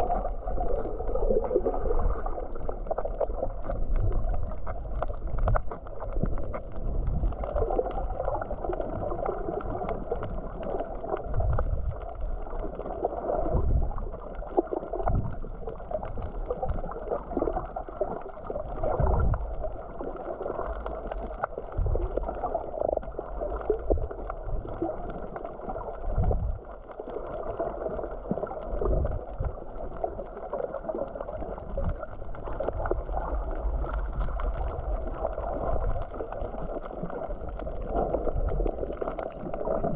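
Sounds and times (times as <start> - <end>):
muffled water gurgling: 0.0 - 39.9.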